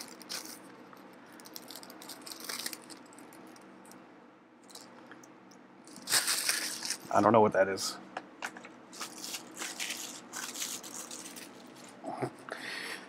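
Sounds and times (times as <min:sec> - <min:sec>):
plastic sheet rustling and crinkling: 0:00.0 - 0:00.7, 0:01.3 - 0:03.3, 0:05.9 - 0:07.3, 0:08.9 - 0:12.0.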